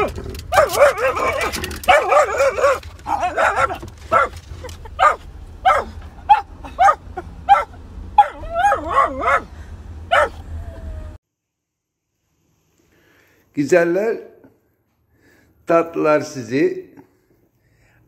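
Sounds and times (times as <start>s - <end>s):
dog barking: 0.0s - 10.5s
dog whining: 0.0s - 11.2s
low steady rumble: 0.0s - 11.2s.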